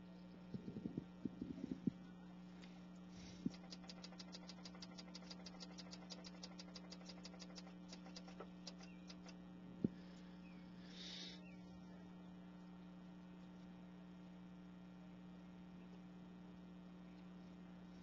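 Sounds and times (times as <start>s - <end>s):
faint electrical hum: 0.0s - 18.0s
rapid faint ticks: 3.4s - 9.4s.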